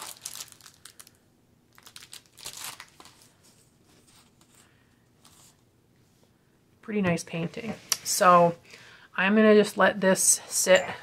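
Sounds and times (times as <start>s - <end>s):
plastic film and paper crinkling: 0.0s - 4.6s.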